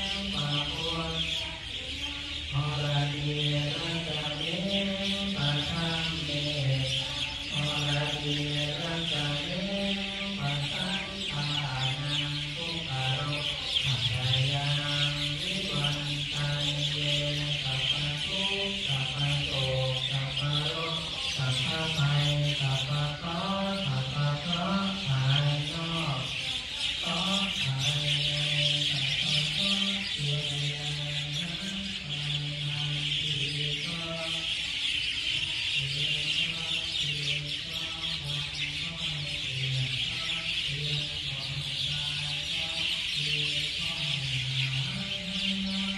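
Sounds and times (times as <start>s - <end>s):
low voices chanting: 0.0s - 45.9s
many birds chirping: 0.0s - 45.9s.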